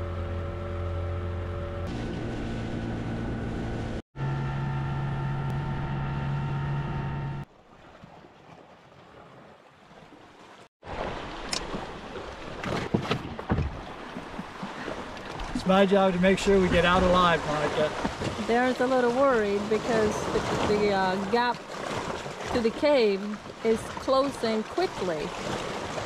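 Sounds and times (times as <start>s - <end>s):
outboard motor running: 0.0s - 7.5s, 13.6s - 26.0s
water splashing: 7.5s - 26.0s.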